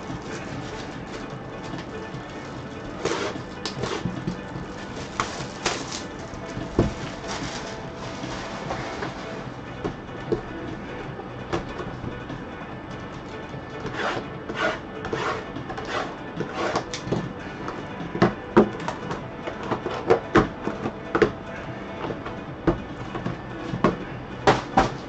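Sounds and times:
cardboard boxes rustling and sliding: 0.0s - 9.6s
quiet background music: 0.0s - 25.0s
boxes knocking on table: 22.1s - 25.0s.

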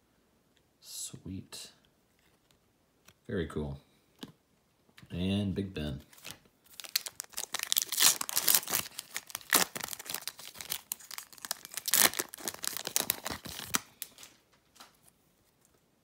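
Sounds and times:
foil wrapper tearing and crinkling: 6.2s - 14.4s.

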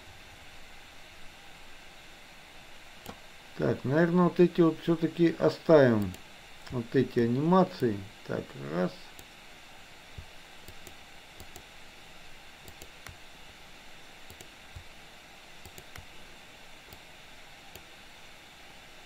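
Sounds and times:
faint steady hiss: 0.0s - 19.0s
mouse and keyboard clicks: 10.6s - 11.7s, 12.6s - 13.2s, 15.6s - 16.1s.

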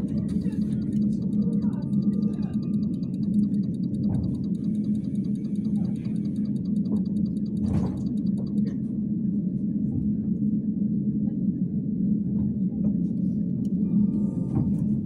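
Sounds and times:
trolleybus rumble and hum: 0.0s - 6.1s, 7.6s - 10.5s, 11.2s - 15.0s
rapid even ticking: 0.0s - 8.7s.

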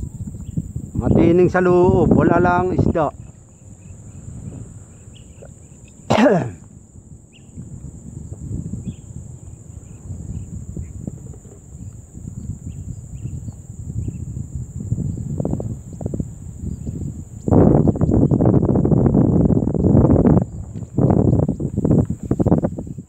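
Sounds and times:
faint chirps: 0.0s - 14.4s
high insect drone: 0.0s - 23.0s
wind buffeting microphone: 0.0s - 23.0s.

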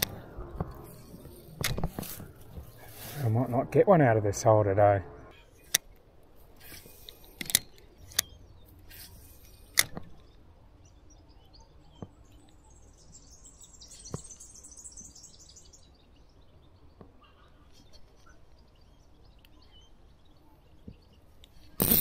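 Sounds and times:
fishing reel clicks and hisses: 21.8s - 22.0s.

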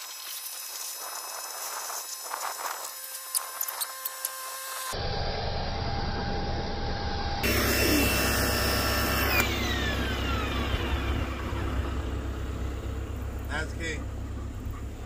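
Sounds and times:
pressure washer motor whine: 0.0s - 14.6s.

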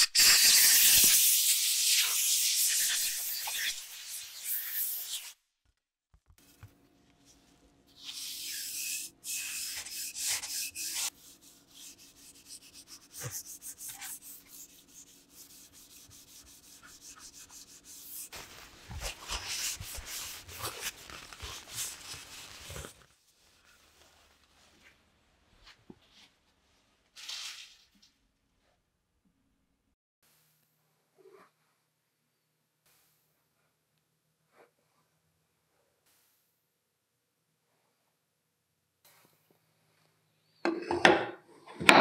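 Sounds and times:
aerosol spray can hissing: 0.0s - 5.4s, 8.0s - 14.7s
paper towel wiping wood: 7.9s - 24.7s.

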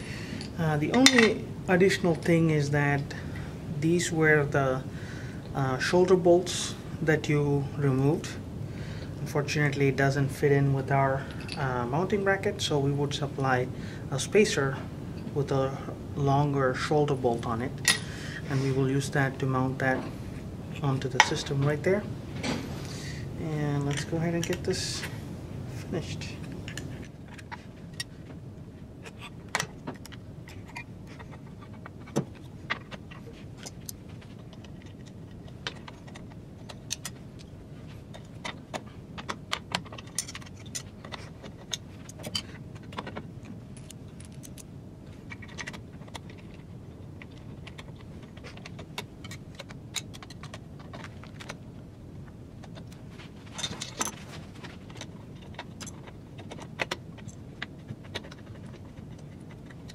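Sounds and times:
steel parts and tools clinking: 0.3s - 1.4s, 17.8s - 18.1s.

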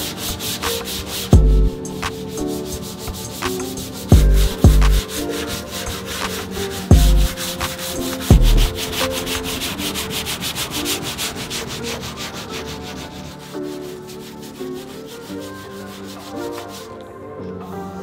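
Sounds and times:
sandpaper block rasping: 0.0s - 1.4s, 2.0s - 16.9s
deep thumps: 1.4s - 1.8s, 4.1s - 5.0s, 6.9s - 7.4s, 8.3s - 8.7s.

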